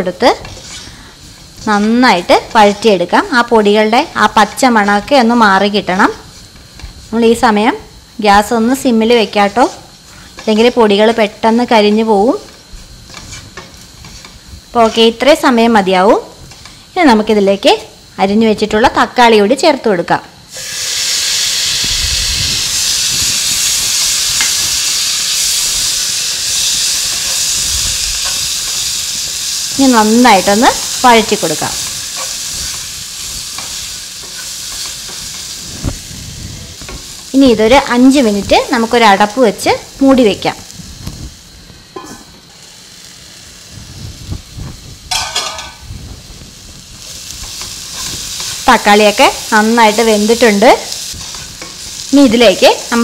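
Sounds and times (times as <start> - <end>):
tomatoes sizzling in oil: 0.0 - 53.0
wooden spatula scraping pan: 0.4 - 1.0.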